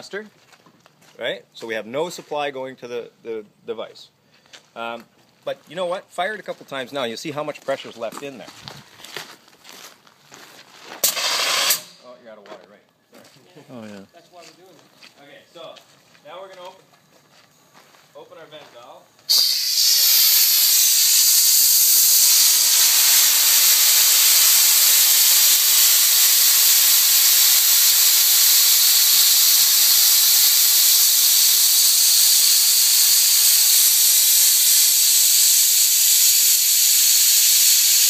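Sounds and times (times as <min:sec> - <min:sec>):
compressed air hissing from valve: 0:11.0 - 0:12.0, 0:19.3 - 0:38.0.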